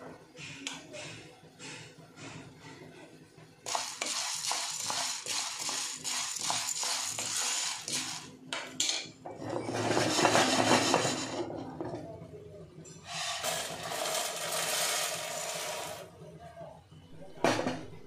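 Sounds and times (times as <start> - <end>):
peppercorns rattling in metal pan: 3.7 - 8.3, 13.0 - 16.0.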